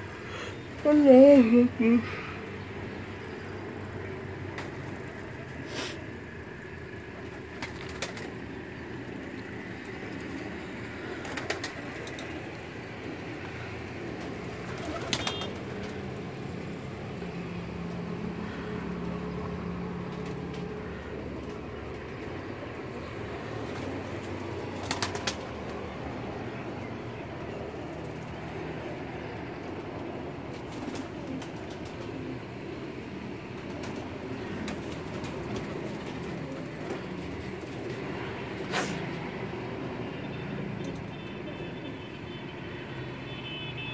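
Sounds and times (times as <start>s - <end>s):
pigeons cooing: 10.8s - 15.9s.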